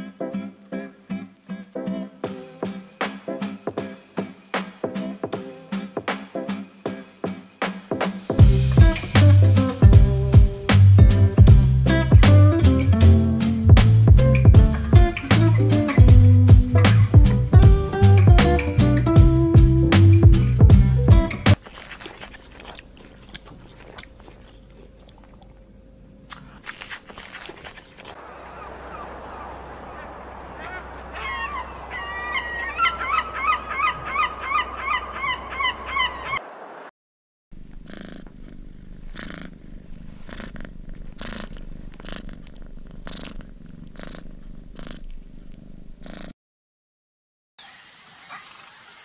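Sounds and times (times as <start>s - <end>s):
giraffe chewing: 21.5s - 34.7s, 37.6s - 45.6s
cat purring: 37.6s - 46.4s.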